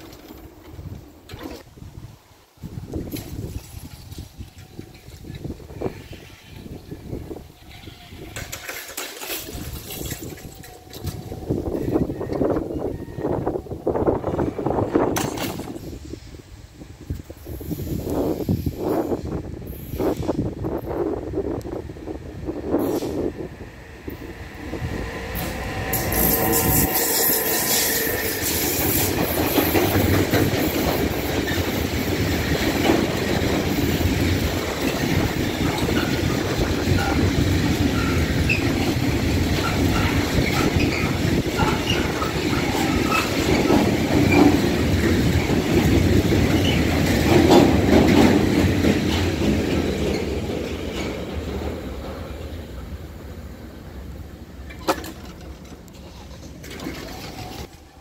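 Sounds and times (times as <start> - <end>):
train wheels rolling on rails: 0.0 - 58.0
wheel squeals: 35.5 - 39.0, 39.6 - 44.6, 55.9 - 58.0.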